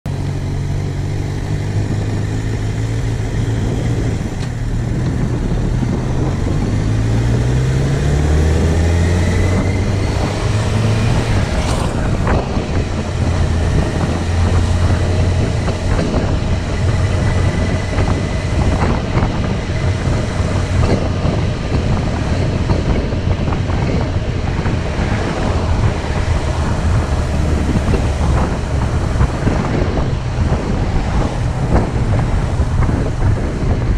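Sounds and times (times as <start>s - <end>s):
engine running: 0.0s - 33.9s
rushing noise: 1.9s - 33.9s.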